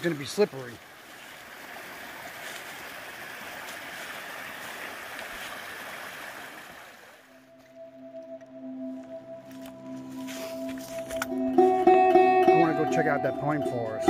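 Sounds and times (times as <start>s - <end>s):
small stream running: 0.0s - 7.7s.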